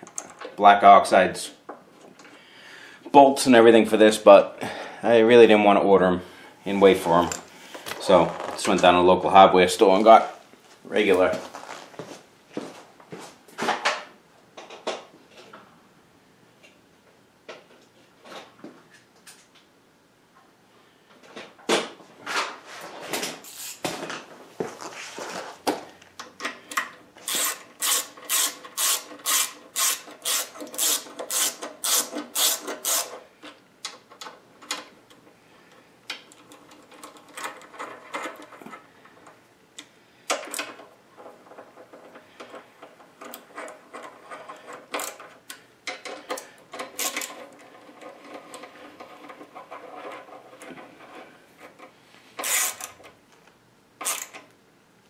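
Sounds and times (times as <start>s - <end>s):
ratchet wrench clicking: 27.3s - 33.2s, 52.4s - 52.9s, 54.0s - 54.4s.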